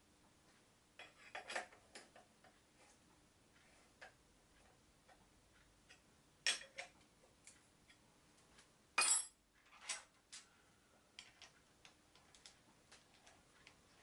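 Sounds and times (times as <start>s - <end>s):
metal parts clinking on metal table: 9.0s - 10.1s.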